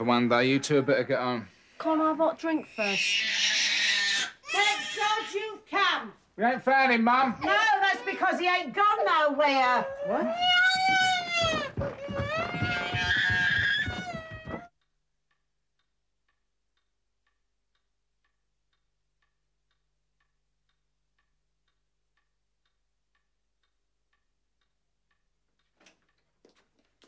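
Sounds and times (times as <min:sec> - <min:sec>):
clock ticking faintly: 0:14.8 - 0:26.8.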